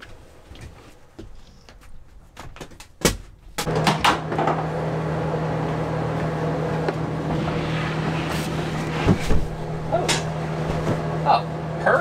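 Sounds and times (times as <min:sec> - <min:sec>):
motor or fan humming: 0:03.6 - 0:12.0.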